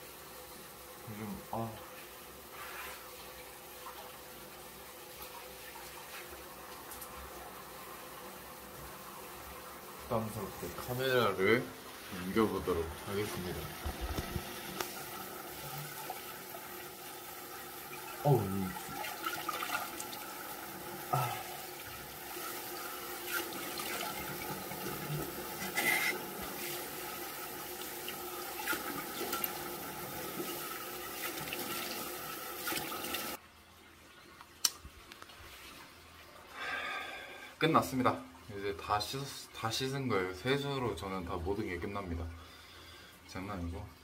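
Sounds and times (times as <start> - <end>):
sink tap running: 3.4 - 33.4.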